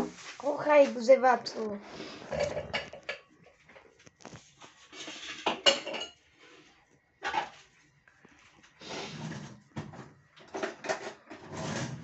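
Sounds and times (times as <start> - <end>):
dishes clinking and knocking: 2.3 - 3.9, 5.0 - 6.2.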